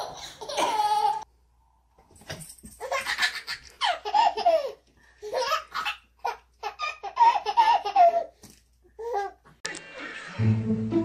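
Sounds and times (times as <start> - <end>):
baby laughing: 0.0 - 1.3, 2.8 - 8.4.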